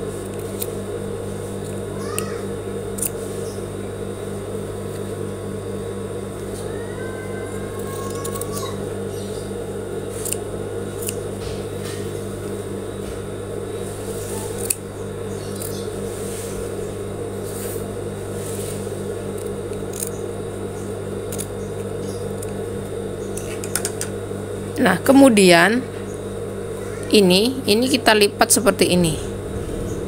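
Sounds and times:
low hum: 0:00.0 - 0:30.0
scissors snipping fabric: 0:10.1 - 0:12.0, 0:14.0 - 0:14.8.

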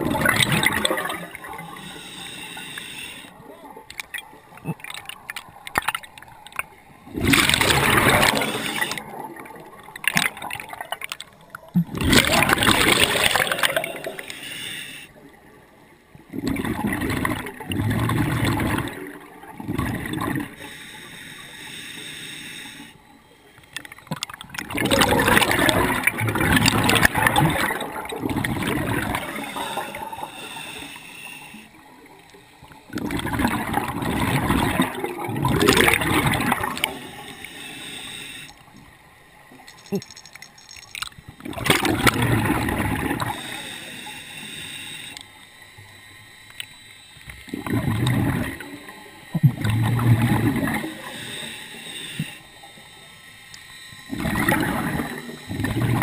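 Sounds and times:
exhaled bubbles rushing: 0:00.0 - 0:01.8, 0:04.1 - 0:14.2, 0:16.2 - 0:20.6, 0:24.1 - 0:30.1, 0:32.9 - 0:37.0, 0:40.9 - 0:43.4, 0:47.5 - 0:51.1, 0:54.0 - 0:56.0
hissing regulator inhales: 0:01.6 - 0:03.4, 0:08.0 - 0:09.1, 0:13.1 - 0:15.2, 0:20.4 - 0:23.1, 0:29.2 - 0:32.8, 0:36.7 - 0:38.7, 0:43.2 - 0:45.6, 0:50.8 - 0:54.2.

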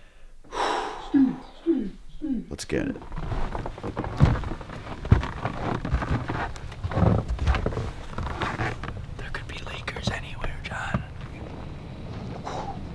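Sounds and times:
heavy thumps: 0:03.0 - 0:09.1
footsteps crunching snow: 0:03.1 - 0:09.0.

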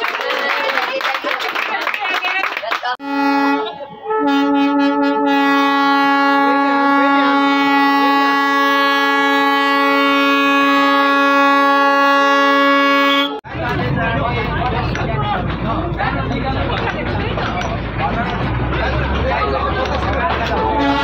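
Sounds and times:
train horn long blast: 0:03.0 - 0:13.4, 0:20.6 - 0:21.0.

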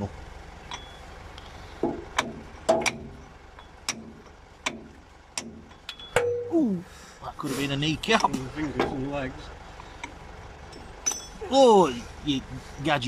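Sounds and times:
hammer clanking on steel: 0:01.8 - 0:06.6, 0:10.7 - 0:11.5.

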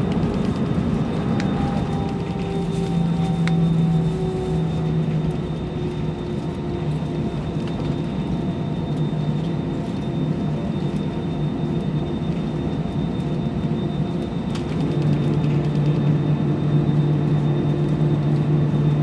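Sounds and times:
low hum: 0:00.0 - 0:19.0
rumble of engines and wheels: 0:00.0 - 0:19.0.

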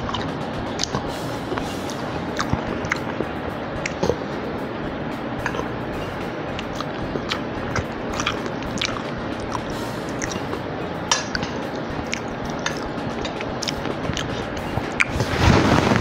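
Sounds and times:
steady background hiss: 0:00.0 - 0:16.0
wet chewing clicks and smacks: 0:06.6 - 0:10.6, 0:12.0 - 0:15.3.

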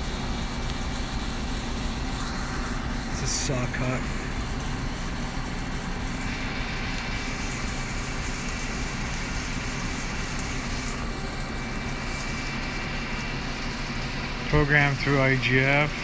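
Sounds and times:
lathe machining noise: 0:00.0 - 0:16.0
thin high whine: 0:01.7 - 0:08.6, 0:09.4 - 0:12.7.

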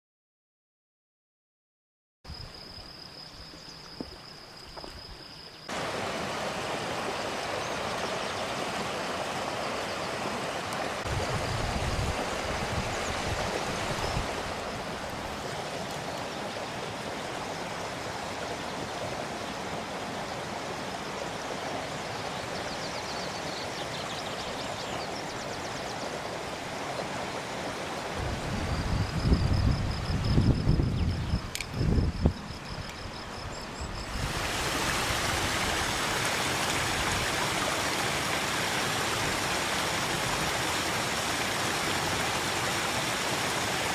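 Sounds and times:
stream rushing over rocks: 0:05.7 - 0:28.9, 0:34.0 - 0:43.9.

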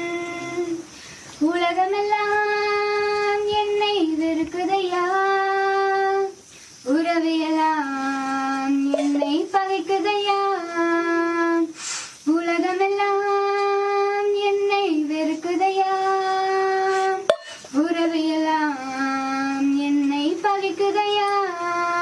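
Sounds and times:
girl singing unaccompanied: 0:00.0 - 0:22.0
girl breathing in: 0:16.9 - 0:17.7.

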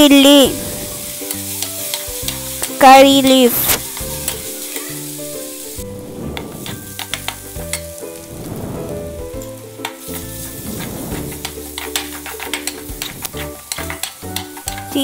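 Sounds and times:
onions sizzling in oil: 0:00.0 - 0:15.0
spoon scraping metal pan: 0:06.2 - 0:07.9, 0:10.0 - 0:15.0.

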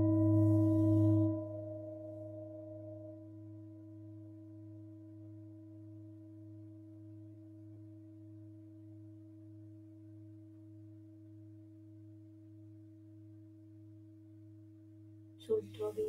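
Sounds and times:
singing bowls ringing: 0:00.0 - 0:02.8.

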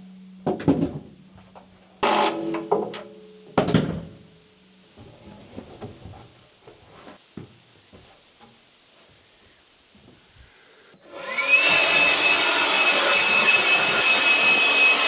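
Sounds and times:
cordless drill driving screws: 0:11.1 - 0:15.0.

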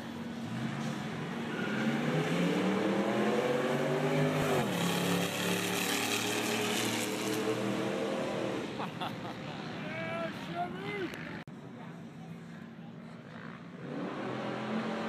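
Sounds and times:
car engine accelerating: 0:00.0 - 0:08.8.

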